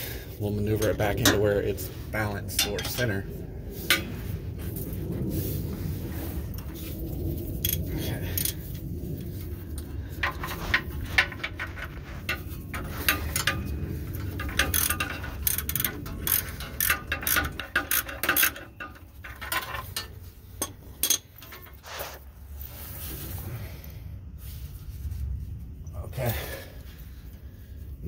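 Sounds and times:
ratchet wrench clicking: 14.4 - 21.2.

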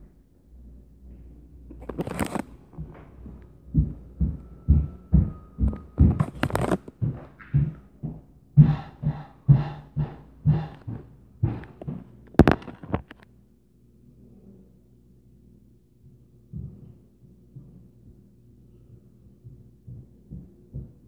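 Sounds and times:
footsteps thumping through ceiling: 2.1 - 13.1.

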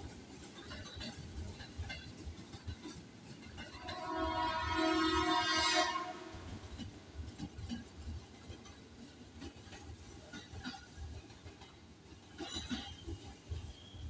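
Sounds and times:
low rumble of rolling train: 0.0 - 14.0
train horn blast: 3.8 - 6.6.

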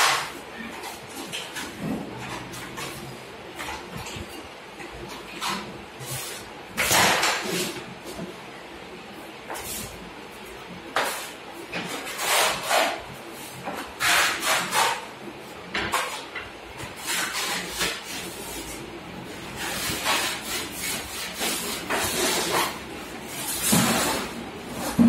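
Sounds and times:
putty blade scraping wall: 11.0 - 13.0, 13.6 - 15.1, 15.8 - 25.0.

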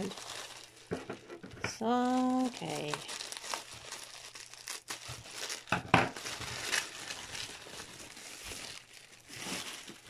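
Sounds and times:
bubble wrap crinkling: 0.0 - 10.0.

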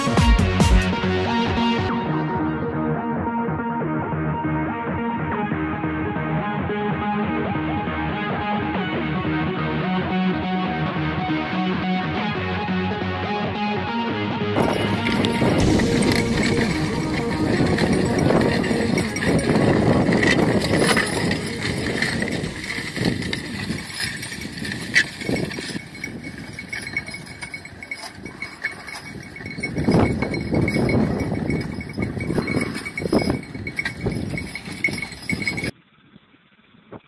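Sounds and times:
harness rattling: 14.6 - 35.7
horse hooves: 14.6 - 35.7
metal harrow discs clanking: 14.6 - 35.7.

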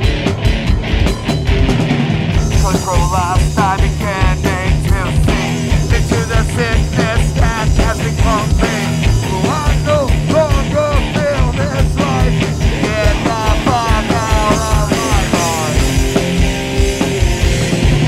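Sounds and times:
rock band playing: 0.0 - 18.0
person singing: 2.4 - 16.2.

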